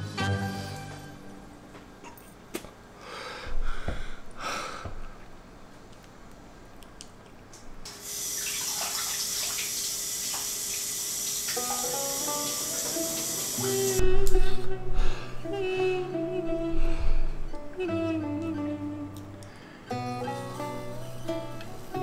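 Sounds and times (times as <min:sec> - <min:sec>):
faucet running into sink: 0:07.9 - 0:13.8
faint music: 0:11.6 - 0:22.0
air blown into balloon: 0:13.6 - 0:19.0.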